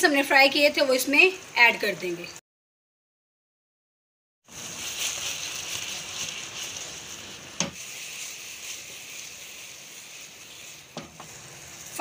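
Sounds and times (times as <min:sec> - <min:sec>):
chicken sizzling in sauce: 0:04.5 - 0:12.0
spatula knocking pan: 0:07.6 - 0:07.8, 0:11.0 - 0:11.3.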